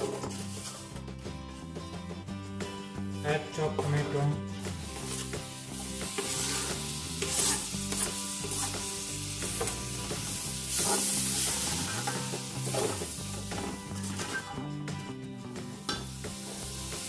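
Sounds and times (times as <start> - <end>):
wooden spatula scraping pot: 0.0 - 0.9, 6.1 - 8.6
tomato sizzling in hot oil: 4.6 - 14.6, 15.8 - 17.0.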